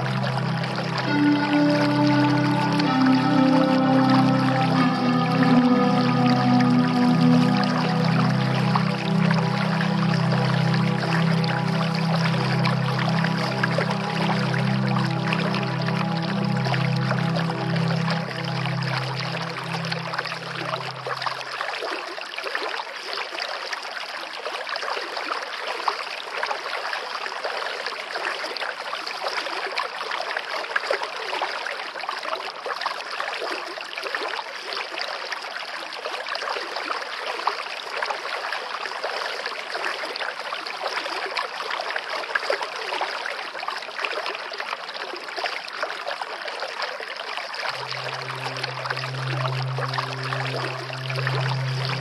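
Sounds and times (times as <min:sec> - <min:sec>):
stream babbling: 0:00.0 - 0:21.6, 0:47.7 - 0:52.0.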